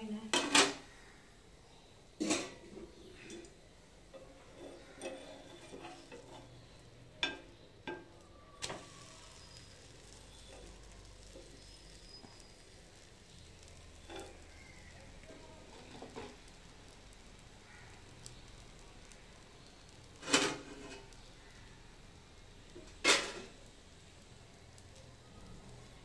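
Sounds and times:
faint sizzle on hot griddle: 0.0s - 26.0s
metal spatula scraping: 4.1s - 8.0s, 13.6s - 16.5s, 20.0s - 21.2s.

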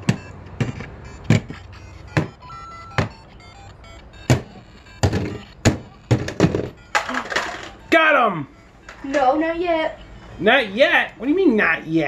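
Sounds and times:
plastic figure knocking on bricks: 0.0s - 1.6s, 2.2s - 2.4s, 3.0s - 3.2s, 4.3s - 7.1s
toy speaker playing music: 0.0s - 10.8s.

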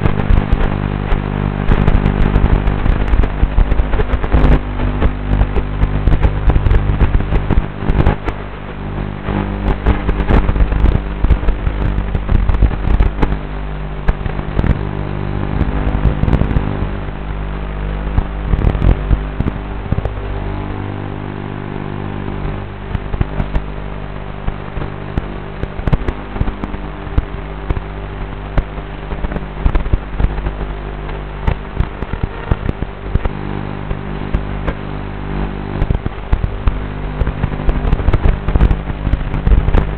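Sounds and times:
sharp crackles and clicks: 0.0s - 39.9s.

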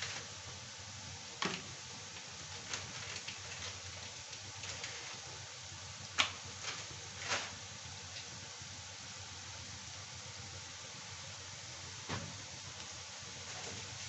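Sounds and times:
onions sizzling in hot oil: 0.0s - 14.0s
crackling pops: 6.0s - 8.4s.

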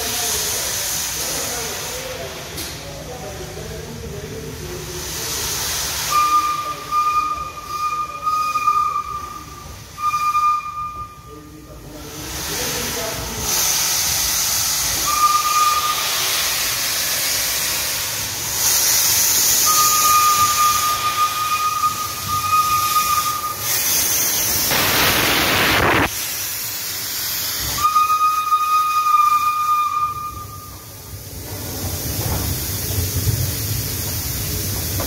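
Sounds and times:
steam blast: 0.0s - 35.0s
steam hissing: 0.0s - 35.0s
steam locomotive moving slowly: 0.0s - 35.0s
high steady squeal: 6.1s - 11.5s, 19.3s - 25.1s.

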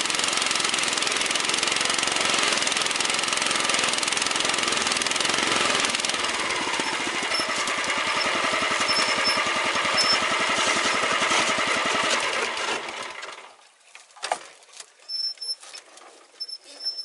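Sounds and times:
ice auger engine running: 0.0s - 13.5s.

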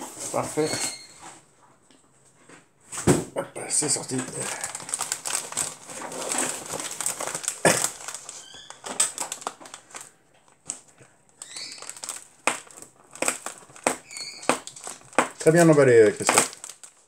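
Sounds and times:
packaging crinkling: 3.8s - 17.0s.

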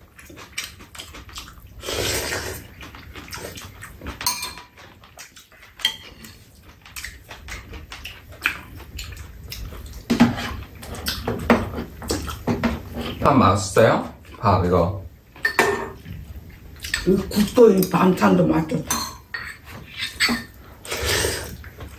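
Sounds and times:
spoons scraping bowls: 18.9s - 21.6s.

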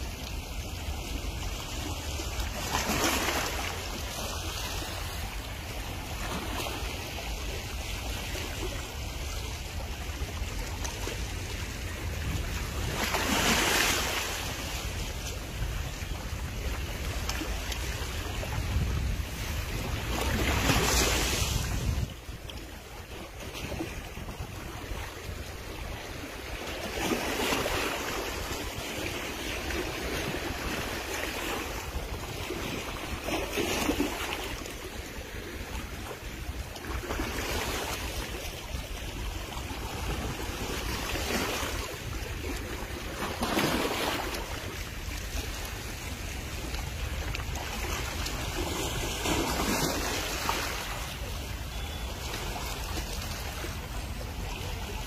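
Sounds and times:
small waves washing on shore: 0.0s - 55.0s
wind rumble on microphone: 0.0s - 55.0s.

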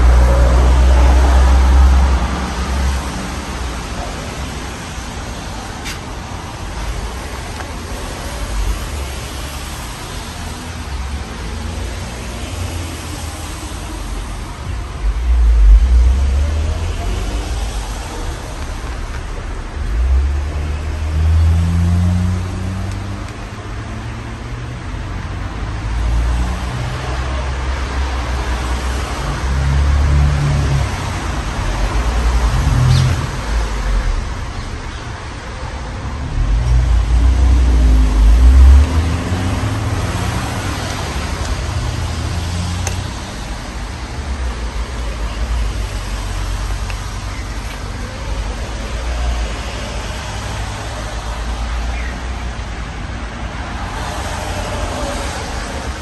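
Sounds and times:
low rumbles: 14.1s - 22.3s.

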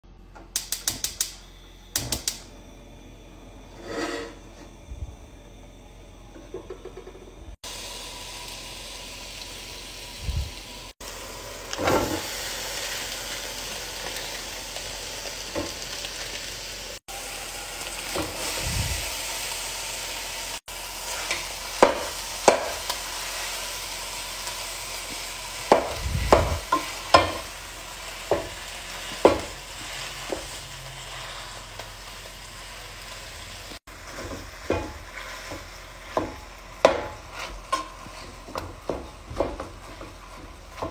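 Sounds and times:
meat sizzling in a pot: 0.6s - 4.8s, 6.6s - 40.9s
wooden spatula scraping pot: 3.7s - 4.7s, 37.1s - 39.0s.

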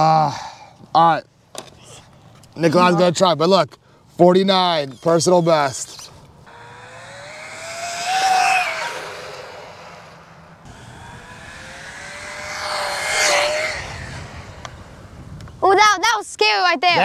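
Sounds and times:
rc truck motor whining: 5.0s - 15.2s.

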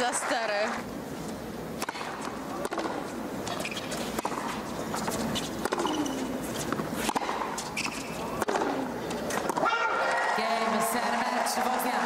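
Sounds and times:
stadium ambience: 0.0s - 12.0s
racket hitting tennis ball: 1.8s - 9.8s.

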